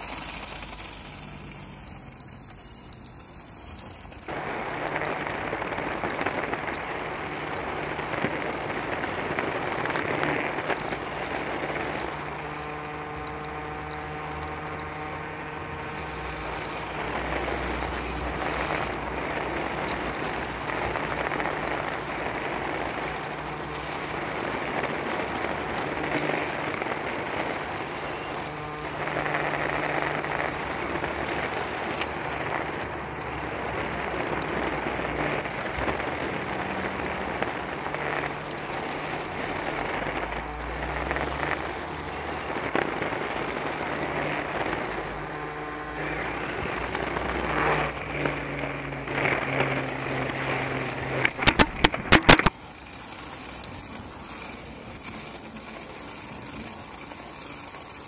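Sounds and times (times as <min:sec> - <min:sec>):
steady multi-tone hum: 0:00.0 - 0:58.0
toy car motors running on brick: 0:00.0 - 0:58.0.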